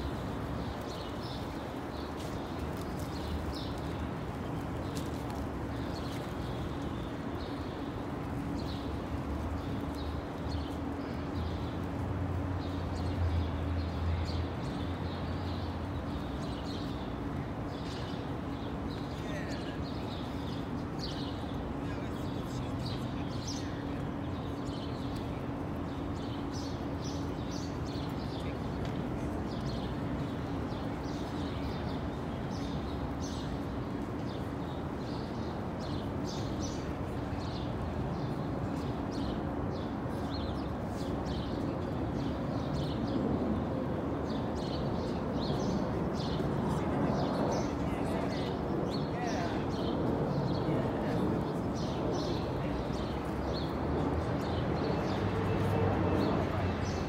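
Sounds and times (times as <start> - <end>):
murmur of people: 18.8 - 57.0.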